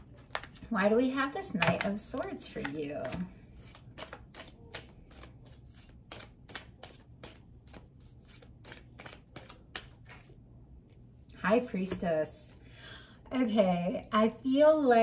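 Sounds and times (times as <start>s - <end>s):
cards being shuffled: 0.0s - 0.6s, 2.0s - 10.4s
faint steady hum: 0.0s - 15.0s.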